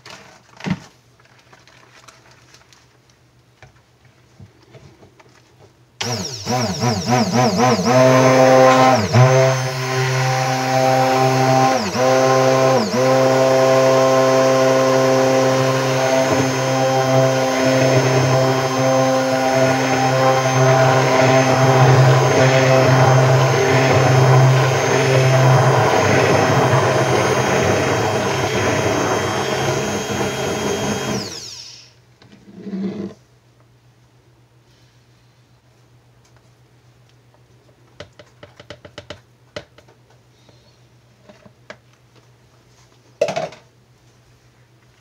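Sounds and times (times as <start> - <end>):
stick blender running: 6.0 - 31.9.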